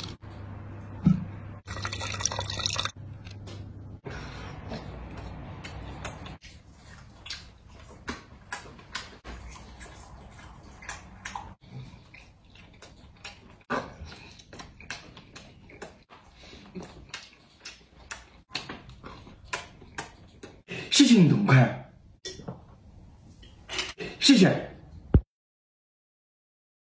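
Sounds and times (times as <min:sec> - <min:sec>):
person chewing and smacking: 0:04.6 - 0:20.6.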